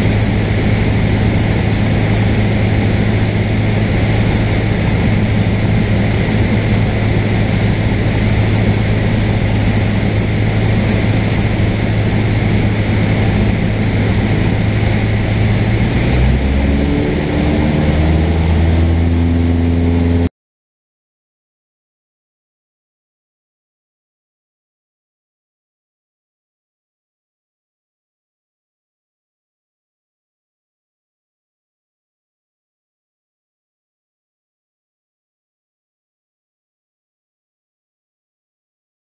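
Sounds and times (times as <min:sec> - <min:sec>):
airplane engine and propeller drone: 0:00.0 - 0:20.3.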